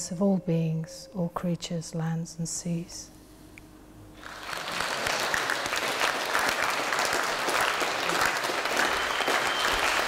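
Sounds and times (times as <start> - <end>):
crowd applauding: 4.2 - 10.0.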